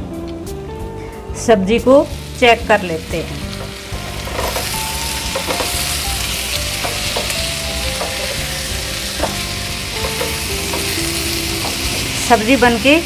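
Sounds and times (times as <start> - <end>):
vegetables sizzling in a frying pan: 1.8 - 13.0
spatula scraping and tapping pan: 3.5 - 5.8, 6.8 - 8.4, 9.1 - 12.0.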